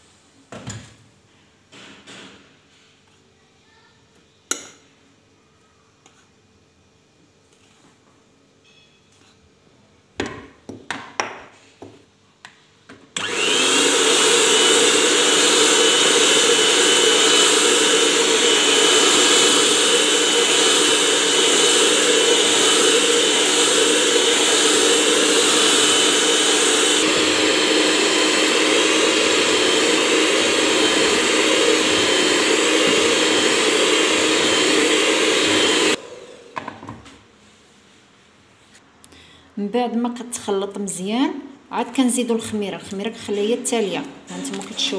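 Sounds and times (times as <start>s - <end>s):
electric hand mixer whining: 13.2s - 36.8s.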